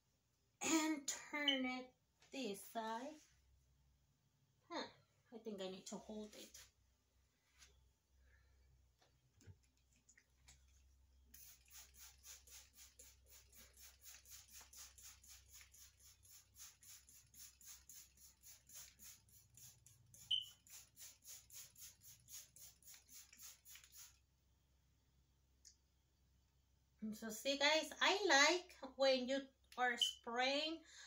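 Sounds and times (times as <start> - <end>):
spray bottle hissing: 11.3 - 24.2.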